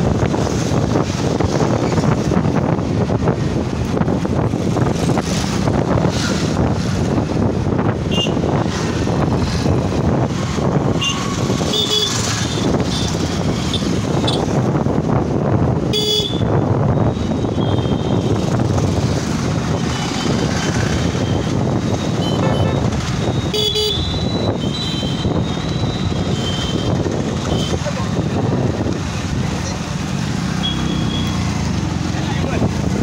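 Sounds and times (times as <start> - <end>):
motorcycle engine and wind: 0.0 - 33.0
vehicle horn toots: 22.2 - 25.3.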